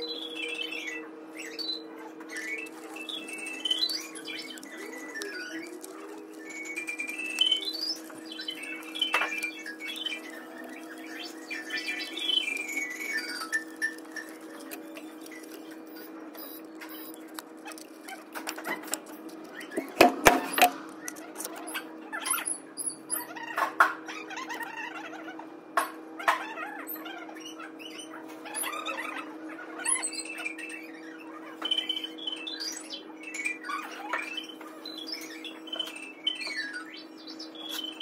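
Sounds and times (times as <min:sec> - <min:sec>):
steady hum: 0:00.0 - 0:23.1.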